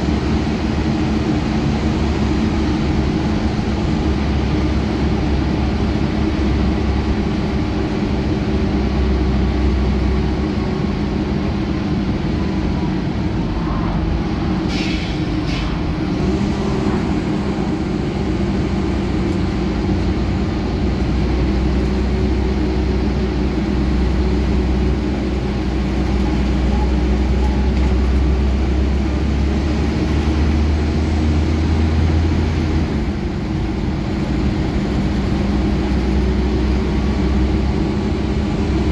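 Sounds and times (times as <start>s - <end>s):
bus diesel engine rumble: 0.0s - 38.9s
road and body noise: 0.0s - 38.9s
short hissing: 14.7s - 15.9s.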